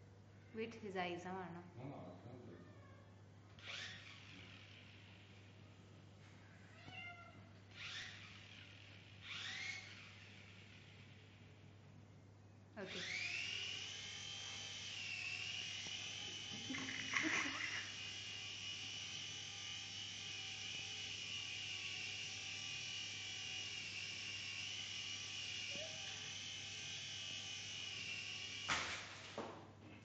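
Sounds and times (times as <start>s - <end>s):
toy helicopter rotor whine: 3.6s - 5.8s, 7.7s - 11.7s, 12.8s - 29.4s.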